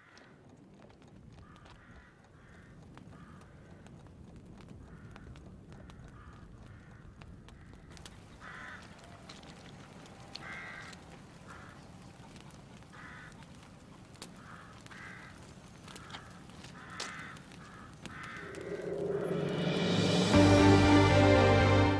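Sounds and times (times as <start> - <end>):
crows cawing: 0.0 - 0.4, 1.4 - 3.8, 4.8 - 19.6
faint outdoor ambience: 0.0 - 21.9.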